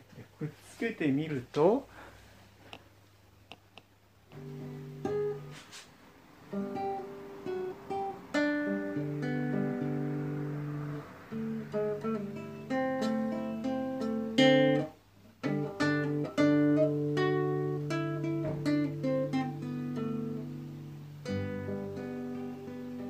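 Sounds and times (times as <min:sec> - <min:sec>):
plucked acoustic guitar: 0:04.3 - 0:05.8, 0:06.4 - 0:23.0.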